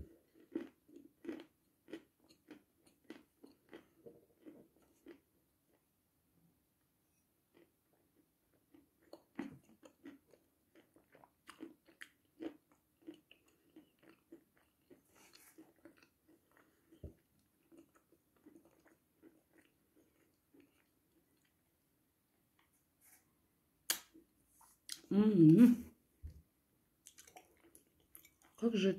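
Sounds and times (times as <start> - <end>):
chalk crunching while chewed: 0.3 - 5.2, 8.7 - 21.6, 27.0 - 28.6.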